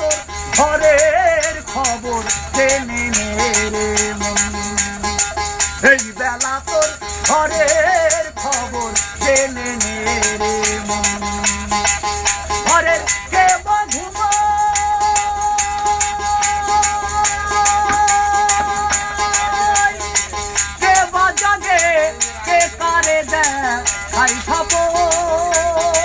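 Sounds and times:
man singing: 0:00.0 - 0:26.0
one-string lute rattling pulse: 0:00.0 - 0:26.0.

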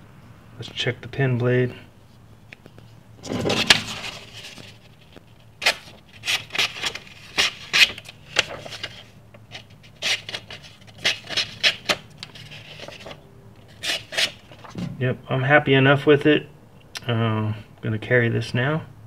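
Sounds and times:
paper rustling: 0:03.2 - 0:14.8.

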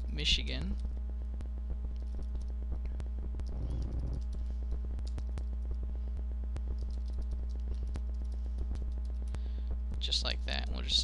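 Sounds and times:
low electrical hum: 0:00.0 - 0:11.0
keyboard typing: 0:01.9 - 0:02.6, 0:03.4 - 0:05.8, 0:06.7 - 0:09.4.

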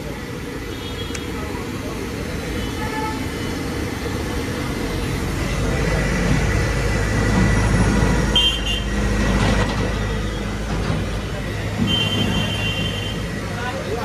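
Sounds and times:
low rumble of street traffic: 0:00.0 - 0:14.0
vehicle engine running close by: 0:03.4 - 0:14.0.

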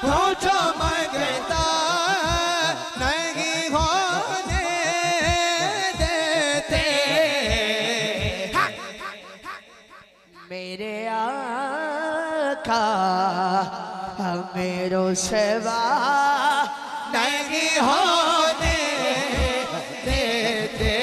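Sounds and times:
steady low beat: 0:00.0 - 0:09.5, 0:18.6 - 0:21.0
man singing ornamented vocal line: 0:00.0 - 0:21.0.

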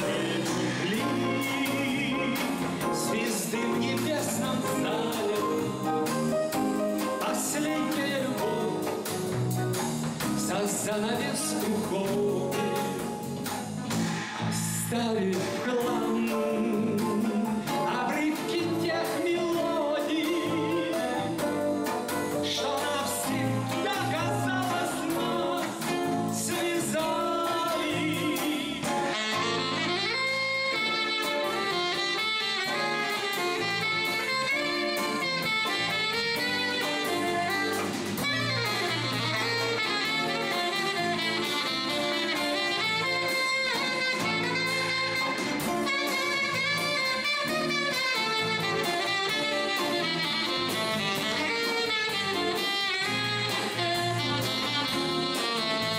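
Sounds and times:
man singing: 0:00.0 - 0:09.4, 0:10.3 - 0:13.5, 0:14.5 - 0:30.6
saxophone melody: 0:00.0 - 0:10.2, 0:15.9 - 0:55.9
acoustic guitar: 0:00.0 - 0:55.9
bass guitar: 0:00.0 - 0:55.9
drum kit: 0:00.0 - 0:55.9.

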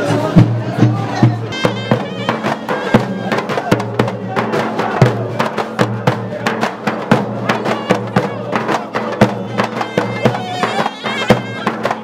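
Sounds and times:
frame drums beating: 0:00.0 - 0:12.0
droning reed wind instrument: 0:09.3 - 0:12.0.

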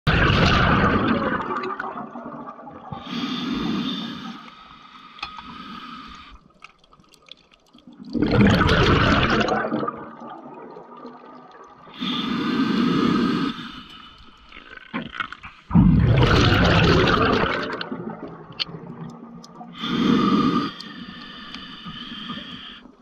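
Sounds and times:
exhaled bubbles gushing: 0:00.1 - 0:04.3, 0:06.1 - 0:23.0
regulator breath in: 0:03.0 - 0:06.4, 0:19.8 - 0:22.9.

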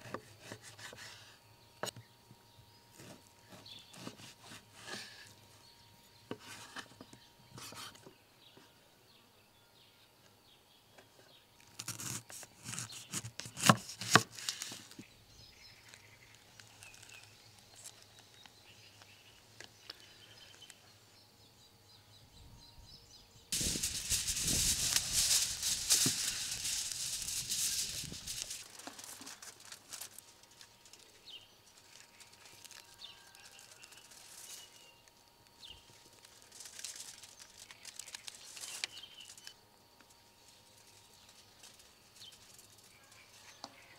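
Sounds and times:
aluminium foil crinkling: 0:11.6 - 0:20.8, 0:23.6 - 0:43.5.

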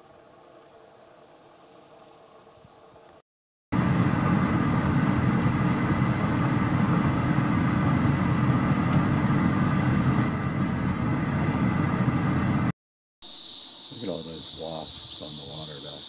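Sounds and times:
vehicle engine idling: 0:03.8 - 0:12.7.

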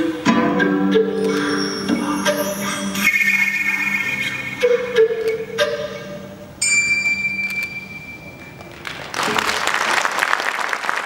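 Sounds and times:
sustained high note: 0:01.2 - 0:07.3
dance music: 0:01.3 - 0:05.6
audience applause: 0:08.7 - 0:11.0.

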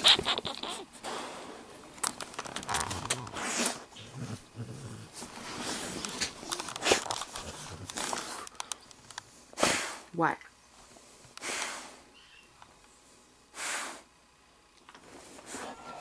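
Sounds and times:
dog grumbling: 0:02.7 - 0:07.9.

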